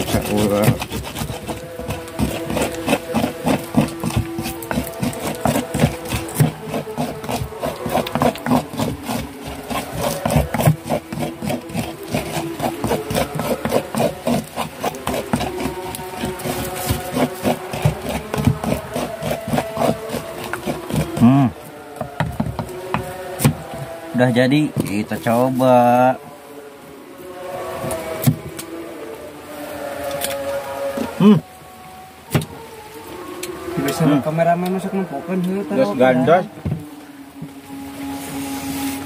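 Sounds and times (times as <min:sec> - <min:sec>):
pestle knocking and scraping mortar: 0:00.0 - 0:25.5, 0:27.8 - 0:28.7.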